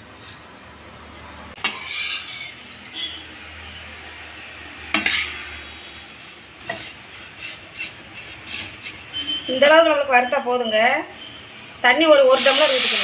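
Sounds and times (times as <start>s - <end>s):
metal spatula scraping noodles in pan: 1.6s - 9.6s.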